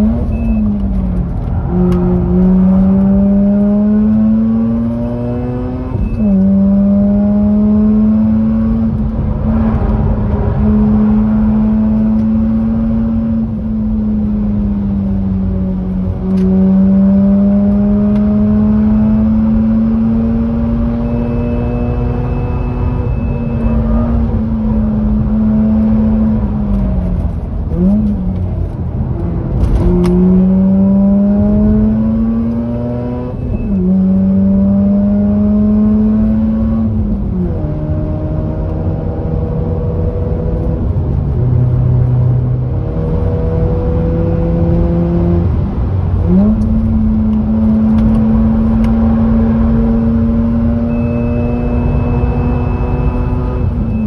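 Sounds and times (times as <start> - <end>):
rotary engine revving: 29.4 - 40.7.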